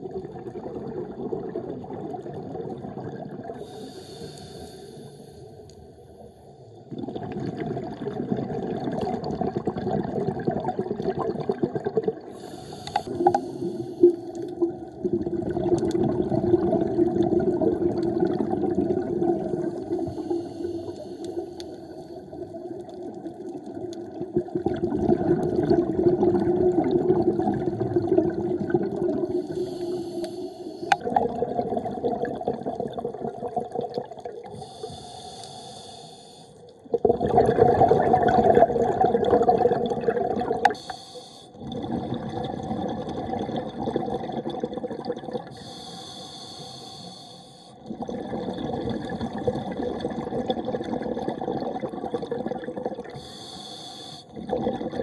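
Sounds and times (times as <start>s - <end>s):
regulator inhalation hiss: 3.6s - 5.6s, 12.4s - 14.4s, 19.9s - 22.3s, 29.3s - 31.0s, 34.5s - 36.6s, 40.7s - 41.6s, 45.5s - 47.8s, 53.2s - 54.4s
bubbling exhaled air: 6.9s - 55.0s.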